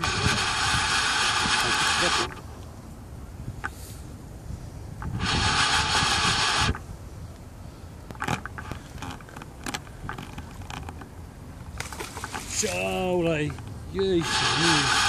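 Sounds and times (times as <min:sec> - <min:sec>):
fishing reel drag screaming: 0:00.0 - 0:02.4, 0:05.2 - 0:06.8, 0:14.0 - 0:15.0.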